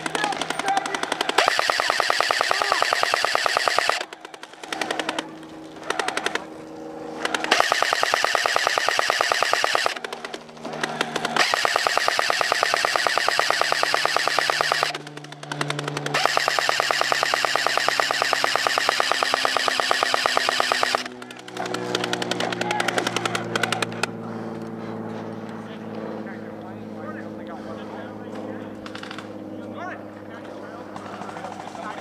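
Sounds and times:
airsoft machine gun bursts: 0.0s - 6.5s, 7.2s - 24.0s.

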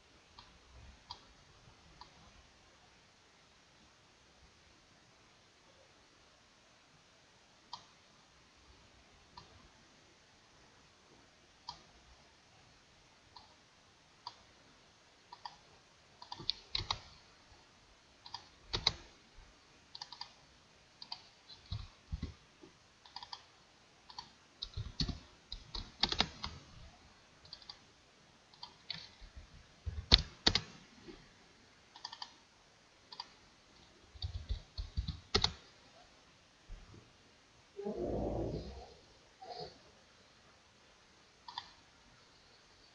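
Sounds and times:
computer mouse clicks: 0.3s - 1.3s, 7.7s - 8.0s, 9.3s - 9.6s, 11.6s - 11.9s, 13.3s - 13.6s, 14.2s - 14.5s, 15.3s - 17.2s, 18.2s - 19.1s, 19.9s - 20.4s, 21.0s - 22.4s, 23.0s - 26.7s, 27.4s - 27.9s, 28.5s - 30.8s, 31.9s - 32.4s, 33.1s - 35.7s, 41.4s - 41.8s
keyboard keystrokes: 16.2s - 17.1s, 18.2s - 19.0s, 20.0s - 20.4s, 24.1s - 26.6s, 30.0s - 30.7s, 31.9s - 32.4s, 34.2s - 35.6s.

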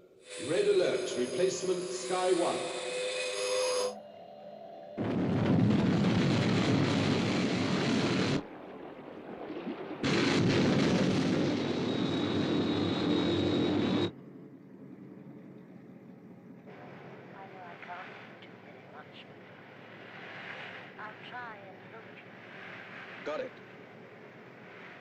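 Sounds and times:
thin high whine: 0.0s - 5.1s, 11.4s - 14.2s
rocket engine roar: 5.0s - 14.1s.

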